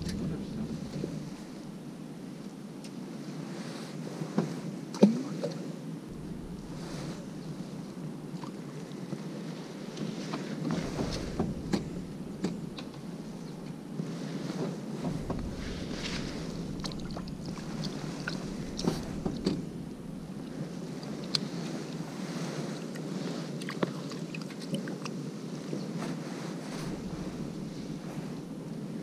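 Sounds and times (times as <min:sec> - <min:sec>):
wind noise on microphone: 0:00.0 - 0:04.8, 0:05.9 - 0:23.6, 0:24.7 - 0:29.0.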